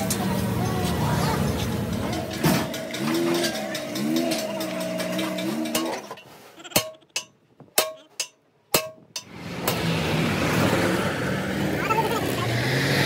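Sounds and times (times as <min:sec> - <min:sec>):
vehicle engine running: 0:00.0 - 0:06.0
road traffic rumble: 0:00.0 - 0:06.8, 0:09.1 - 0:13.0.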